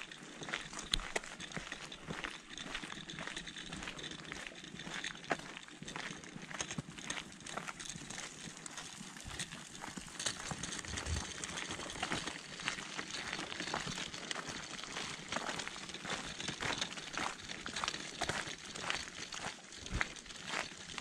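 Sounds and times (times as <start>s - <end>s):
footsteps on gravel: 8.9s - 20.7s.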